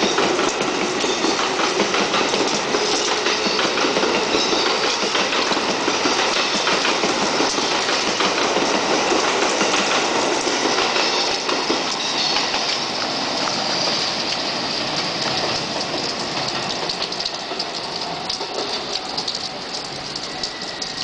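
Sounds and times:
rain pattering: 0:00.0 - 0:21.0
train clattering on tracks: 0:00.0 - 0:21.0.

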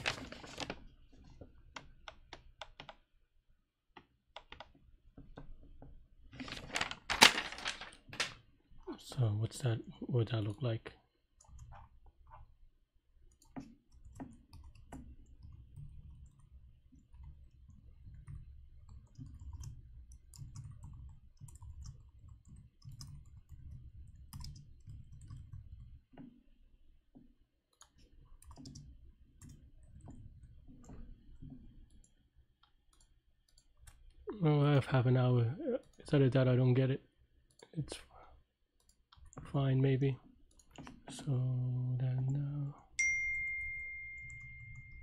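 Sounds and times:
keyboard keys clicking: 0:43.7 - 0:45.0.

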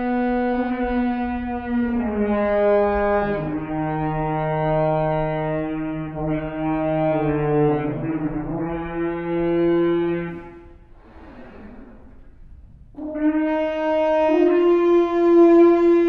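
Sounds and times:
french horn long notes: 0:00.0 - 0:11.2, 0:12.9 - 0:16.0.

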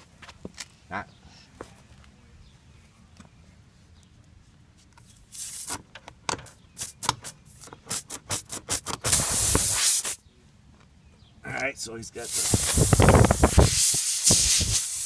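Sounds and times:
air hiss: 0:05.3 - 0:05.8, 0:06.8 - 0:10.2, 0:12.2 - 0:15.0
reamer tool rasping in tire: 0:12.4 - 0:15.0.

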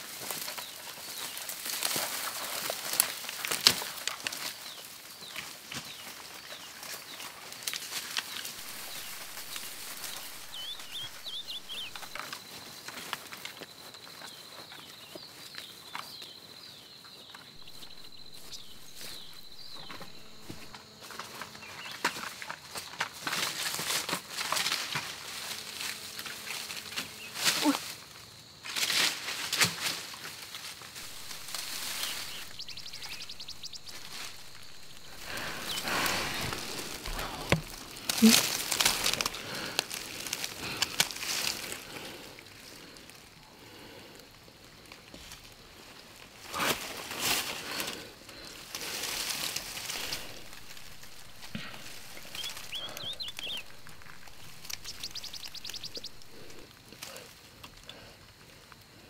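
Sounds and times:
dry leaves rustling and crunching: 0:00.0 - 0:58.1
steady high whine: 0:17.6 - 0:20.8, 0:31.0 - 0:39.3, 0:49.0 - 0:56.7.

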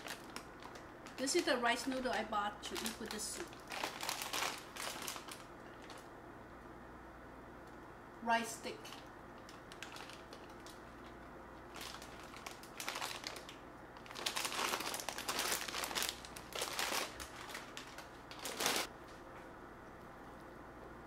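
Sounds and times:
plastic bag crinkling: 0:00.0 - 0:06.1, 0:08.8 - 0:18.9.

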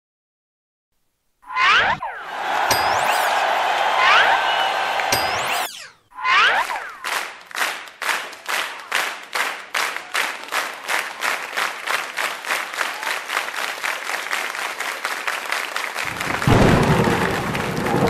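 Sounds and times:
applause: 0:02.3 - 0:05.2, 0:07.0 - 0:18.0
audience clapping in unison: 0:02.3 - 0:05.2, 0:07.0 - 0:18.0.

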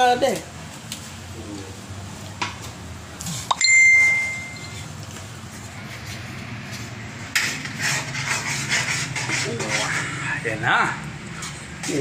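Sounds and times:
metallic ding: 0:03.5 - 0:04.8.

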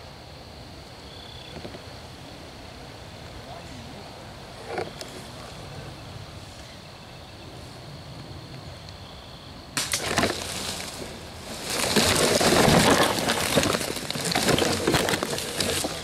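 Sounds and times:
brush rustling and twigs snapping: 0:09.8 - 0:16.0.

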